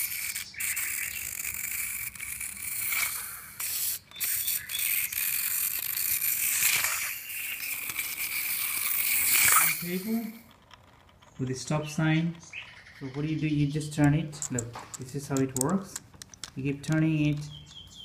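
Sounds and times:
wind-up toy motor whirring: 0.0s - 17.9s.

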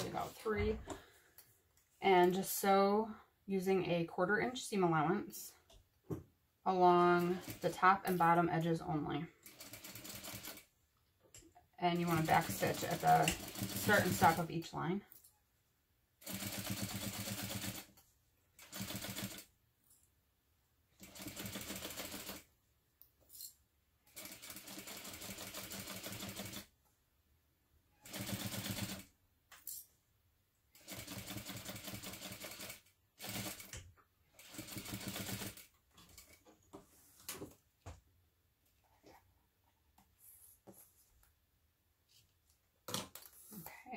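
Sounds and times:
sewing machine stitching: 12.0s - 14.4s, 18.6s - 19.5s, 21.0s - 22.5s, 28.0s - 29.1s, 30.8s - 36.4s.

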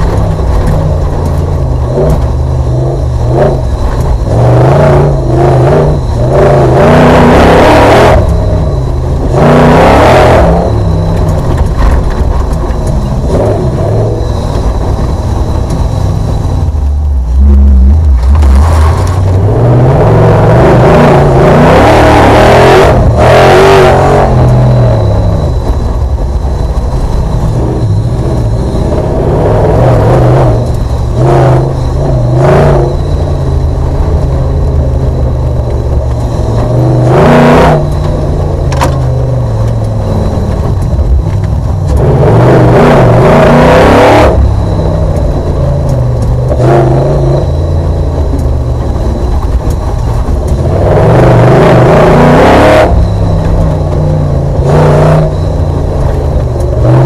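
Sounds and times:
bursts of noise over rough ground: 0.0s - 57.0s
race car engine revving: 0.0s - 57.0s.

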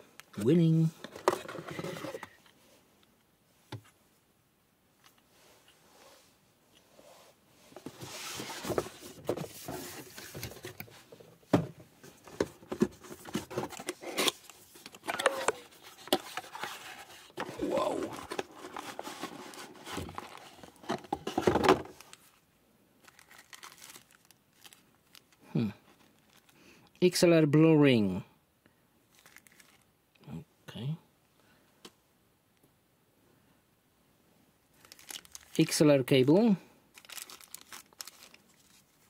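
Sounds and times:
cardboard box handling: 12.4s - 22.0s
plastic bag rustling: 12.9s - 22.4s, 23.0s - 25.4s, 26.0s - 26.6s, 29.1s - 29.9s, 34.7s - 35.8s, 36.9s - 39.0s.

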